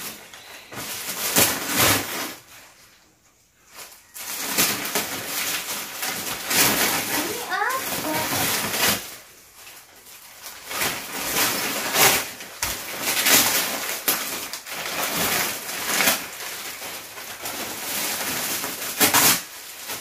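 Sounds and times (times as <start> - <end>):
wrapping paper crinkling and tearing: 0.0 - 20.0.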